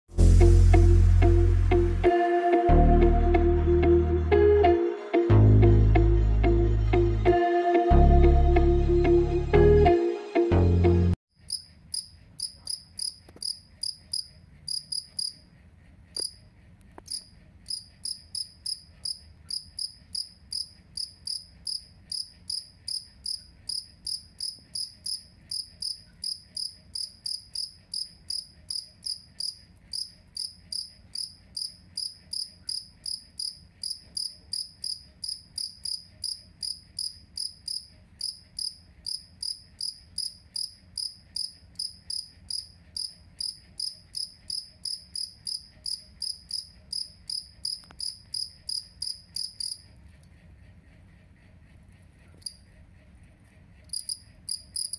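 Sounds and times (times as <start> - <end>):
cricket chirping: 11.5 - 15.4, 16.2 - 16.4, 17.1 - 49.9, 53.9 - 54.9.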